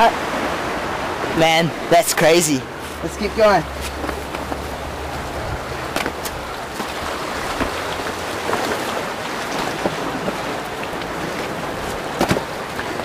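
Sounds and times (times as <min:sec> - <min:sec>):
sea waves on rocks: 0:00.0 - 0:13.0
wind: 0:00.0 - 0:13.0
footsteps on rocks: 0:03.8 - 0:04.8.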